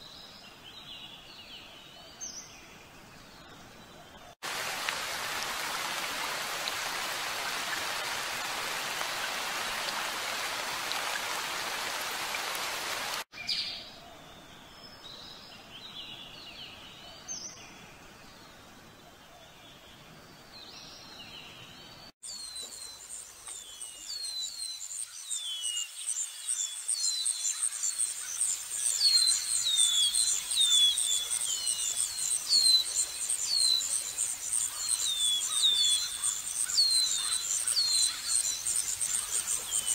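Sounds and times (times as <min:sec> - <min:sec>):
steady hissing noise: 0:04.4 - 0:13.3.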